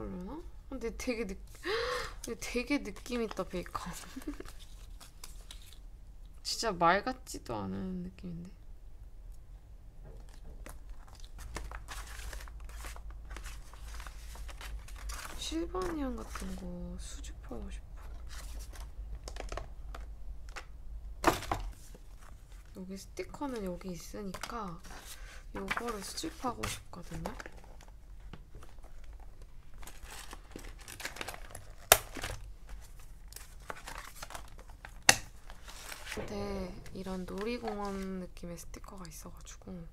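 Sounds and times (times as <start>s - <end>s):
paper rustling and crinkling: 2.5s - 5.8s, 10.2s - 16.9s, 18.0s - 20.7s, 21.3s - 38.2s.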